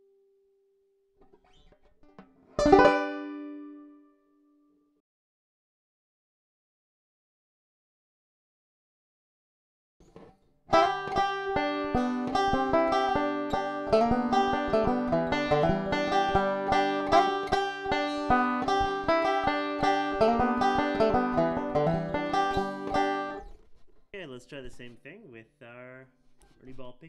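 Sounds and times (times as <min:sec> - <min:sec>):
banjo picking: 0:01.2 - 0:04.1, 0:10.0 - 0:23.8.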